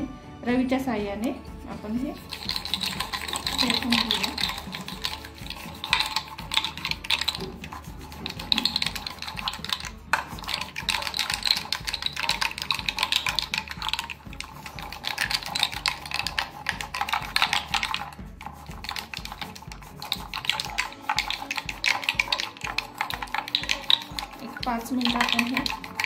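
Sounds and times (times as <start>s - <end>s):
churner clattering in bowl: 18.8s - 26.0s.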